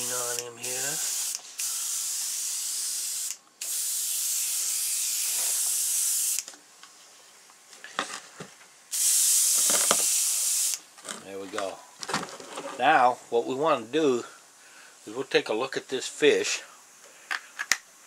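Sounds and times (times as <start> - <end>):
airbrush spraying hiss: 0.0 - 6.5, 8.9 - 10.8.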